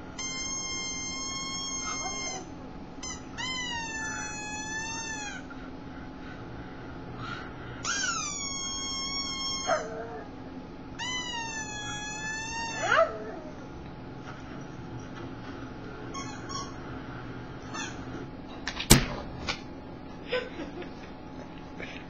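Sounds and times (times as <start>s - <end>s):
dog whining in high squeals: 0.2s - 5.5s, 7.8s - 10.4s, 11.0s - 13.7s, 16.1s - 17.0s.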